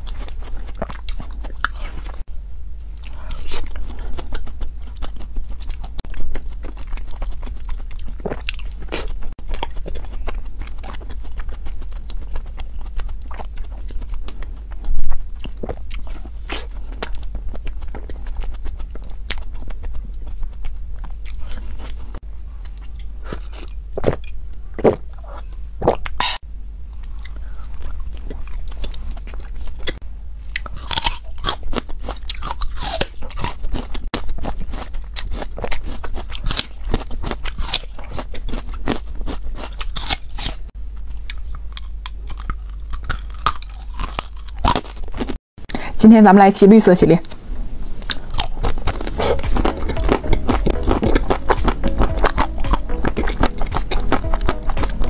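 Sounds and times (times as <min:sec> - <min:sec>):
crunchy chewing of ice cream: 0:00.0 - 0:02.3, 0:02.9 - 0:45.8, 0:47.2 - 0:55.0
low steady hum: 0:00.0 - 0:55.0
wet mouth sounds: 0:48.0 - 0:55.0.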